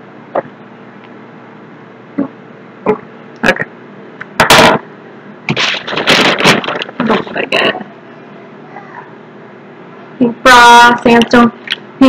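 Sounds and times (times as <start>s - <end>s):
handling noise: 5.5s - 7.5s.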